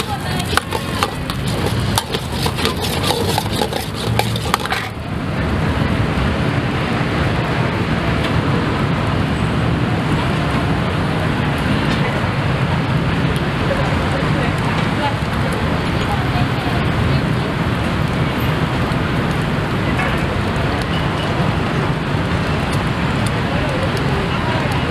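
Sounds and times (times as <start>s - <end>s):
metal spatula clattering on wok: 0.0s - 5.0s
steady rushing noise: 0.0s - 6.8s.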